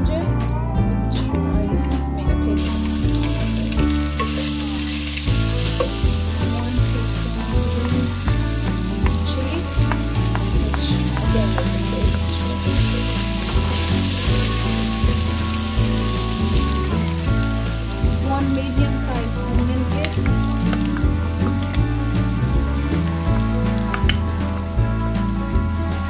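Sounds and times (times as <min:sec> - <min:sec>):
background music with beat: 0:00.0 - 0:26.0
wooden spatula stirring: 0:02.6 - 0:21.6
paste sizzling in hot oil: 0:02.6 - 0:25.8.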